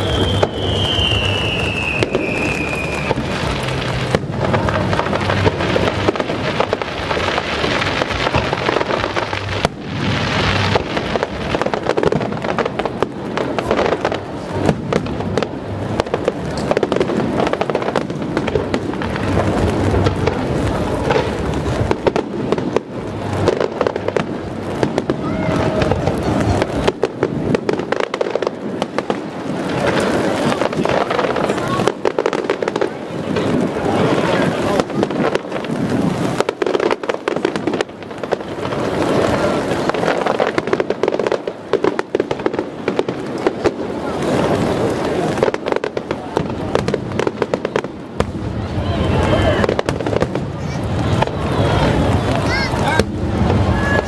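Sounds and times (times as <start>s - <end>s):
falling firework whistle: 0.0s - 6.8s, 48.2s - 54.0s
fireworks bursts and crackling: 0.0s - 54.0s.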